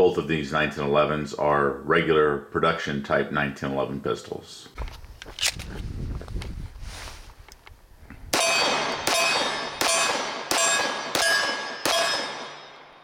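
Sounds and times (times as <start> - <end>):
pistol shots: 8.4 - 13.0
steel target ringing: 8.4 - 13.0.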